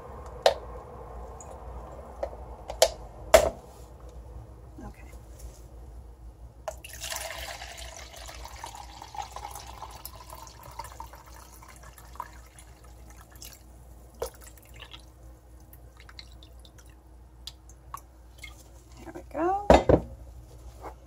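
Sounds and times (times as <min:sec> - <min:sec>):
water pouring into plastic jug: 0:06.7 - 0:13.6.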